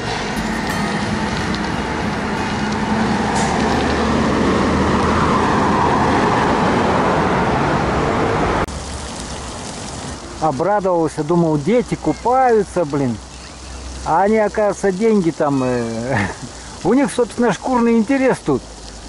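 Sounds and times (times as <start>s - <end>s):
road traffic passing: 0.0s - 10.3s.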